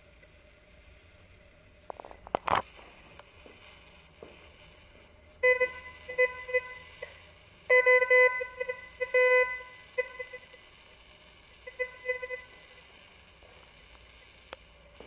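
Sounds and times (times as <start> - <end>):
metal detector beeping tone: 5.4 - 6.9, 7.7 - 10.5, 11.7 - 12.6.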